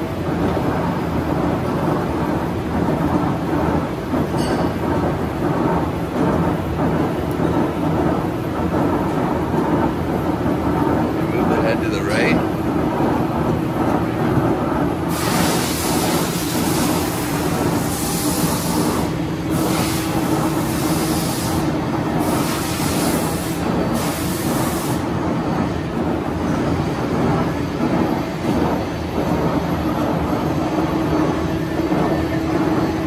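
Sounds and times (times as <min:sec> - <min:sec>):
lathe machine hum: 0:00.0 - 0:33.0
loud hiss: 0:15.1 - 0:25.1.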